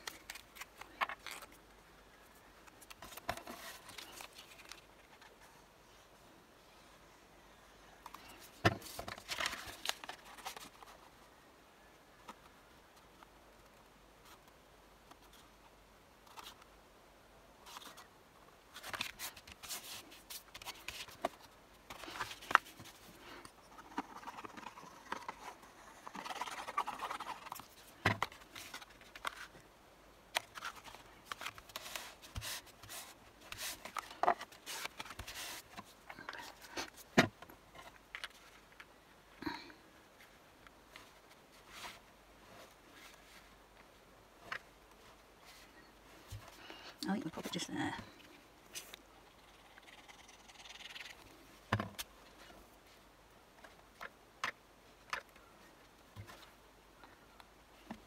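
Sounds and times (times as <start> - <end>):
paper rustling and sliding: 30.4 - 37.0.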